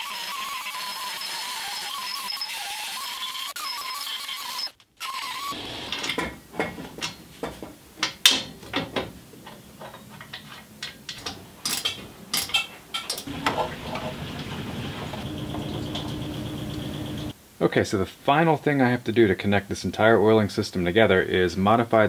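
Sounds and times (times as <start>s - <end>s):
hand tools clicking on metal: 5.9s - 16.9s
steady low hum: 13.2s - 17.4s.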